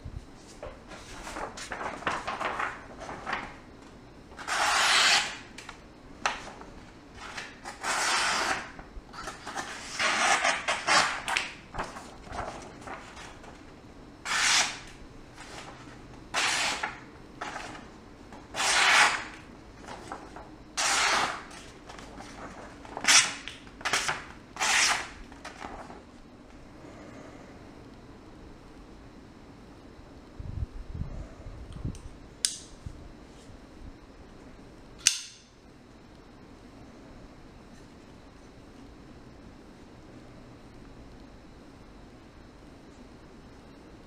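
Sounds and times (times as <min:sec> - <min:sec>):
knife slicing paper: 0:04.4 - 0:05.4, 0:14.2 - 0:14.9, 0:18.5 - 0:19.4, 0:20.8 - 0:21.5, 0:22.9 - 0:25.1.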